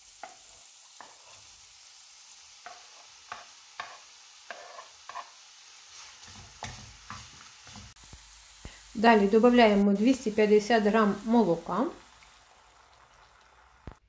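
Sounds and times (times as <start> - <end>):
mushrooms sizzling in a pan: 0.0 - 14.0
wooden spatula scraping and knocking: 2.6 - 8.0.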